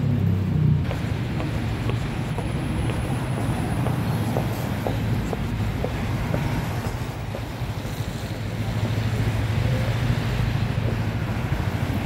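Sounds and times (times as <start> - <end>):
street traffic engine rumble: 0.0 - 12.0.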